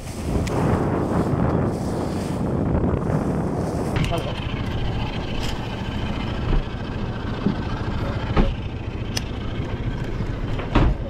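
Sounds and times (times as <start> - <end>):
outboard motor idling: 4.0 - 11.0.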